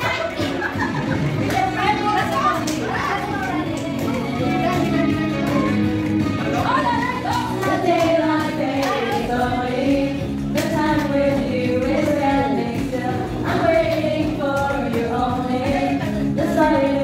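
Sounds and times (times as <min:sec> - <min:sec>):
backing track music: 0:00.0 - 0:17.0
group singing: 0:05.6 - 0:17.0.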